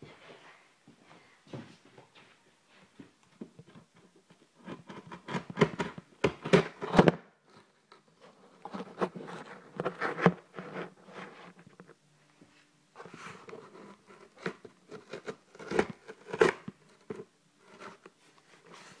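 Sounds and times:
scissors cutting cardboard: 13.3 - 18.0.

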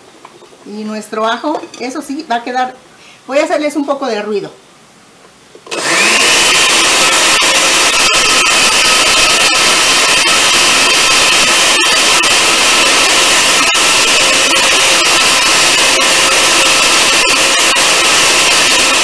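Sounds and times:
blender motor running: 5.7 - 19.0.

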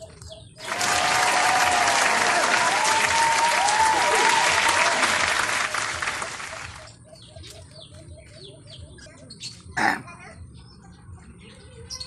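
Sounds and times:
small birds chirping: 0.0 - 0.7, 6.3 - 12.0
applause and cheering: 0.6 - 7.0.

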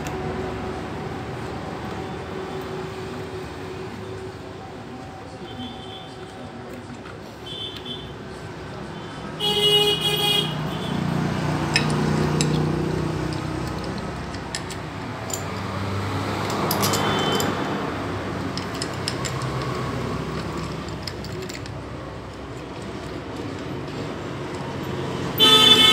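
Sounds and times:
vehicle horn honking: 9.4 - 11.0, 25.4 - 25.9
rumble of passing engines: 10.5 - 25.9.

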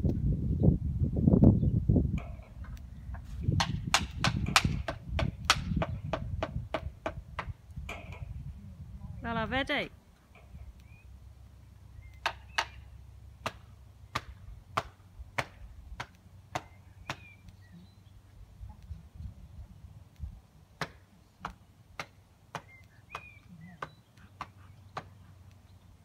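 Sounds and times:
sharp knocks: 3.5 - 8.4.

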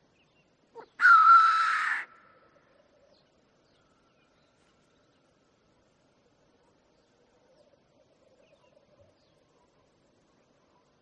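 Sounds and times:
grouse hissing call: 0.8 - 2.3.

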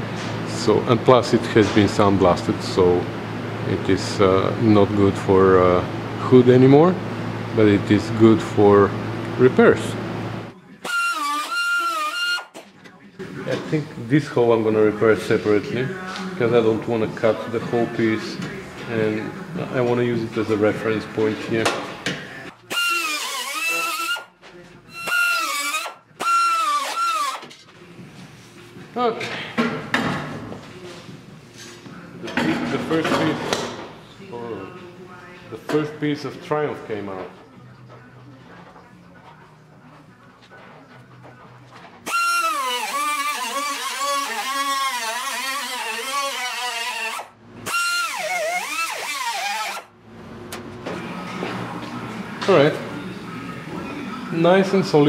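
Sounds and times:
cut-off tool whining through metal: 10.8 - 12.5, 22.7 - 24.3, 24.9 - 27.5, 42.0 - 49.9.

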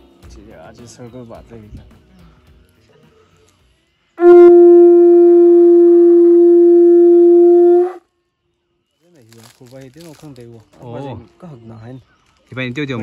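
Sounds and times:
horn trumpet long note: 4.2 - 8.0.

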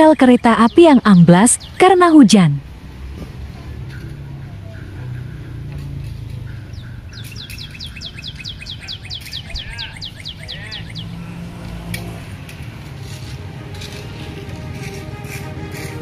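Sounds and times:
bird singing a whistled trill: 6.7 - 11.2
sharp clicks: 7.1 - 11.0.

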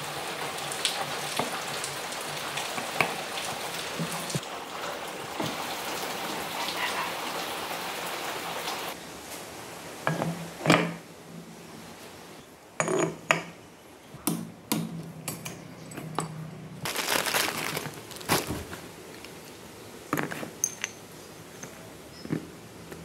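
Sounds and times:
plastic bag rustling: 16.8 - 19.6.

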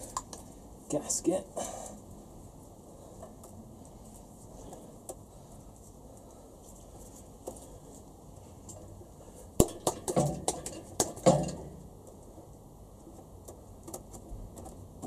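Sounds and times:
metal-on-metal clinks and knocks: 9.6 - 11.8.

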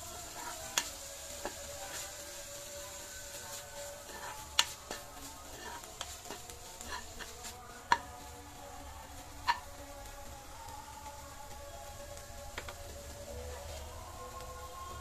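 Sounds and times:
spatula knocking pan: 0.0 - 2.0, 4.0 - 8.2, 9.4 - 9.7
spatula scraping frying pan: 0.0 - 8.2, 9.1 - 9.8
faint sizzle: 0.0 - 15.0.

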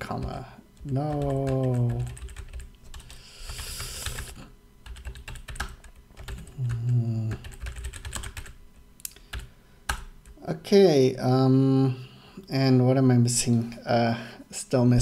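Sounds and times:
typing on computer keyboard: 0.2 - 8.6
person humming: 6.4 - 7.6.

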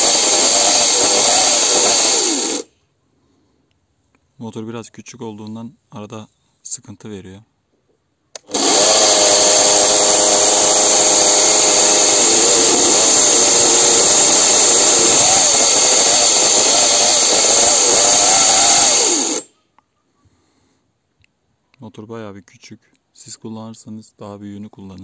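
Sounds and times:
chainsaw chain hiss: 0.0 - 2.7, 8.4 - 19.5
electric chainsaw whining: 0.0 - 2.7, 8.4 - 19.5.

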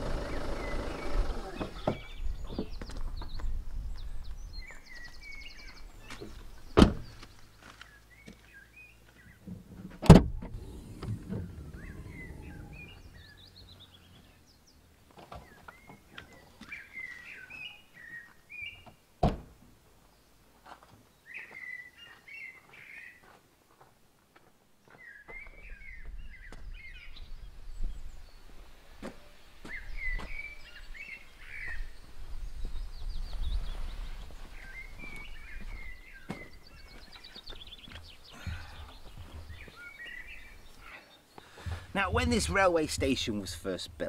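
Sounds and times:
small birds chirping: 0.0 - 9.5, 10.4 - 19.1, 21.0 - 23.2, 24.8 - 44.0
car doors and boot shutting: 6.8 - 7.2, 9.4 - 13.2.

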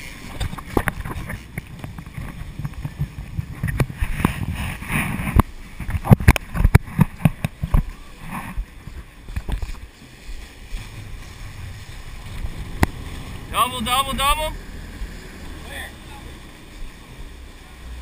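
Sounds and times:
wind buffeting microphone: 0.0 - 15.5
boat engine rumble: 0.0 - 18.0.

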